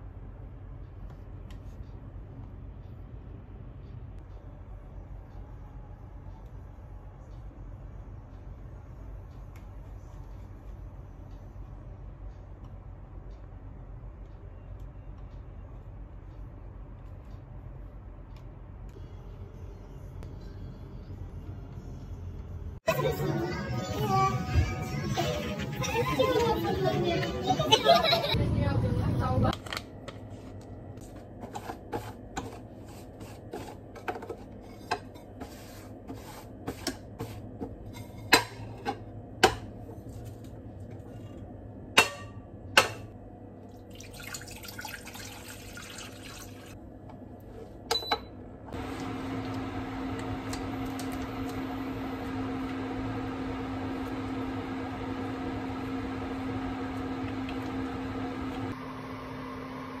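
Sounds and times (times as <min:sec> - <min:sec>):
cooktop electrical hum: 0:00.0 - 1:00.0
water pouring into a saucepan: 0:43.8 - 0:46.8.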